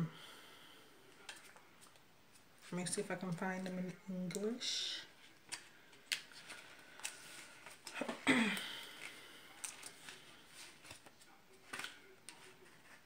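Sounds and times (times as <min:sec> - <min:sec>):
pages rustling: 0:05.2 - 0:13.0.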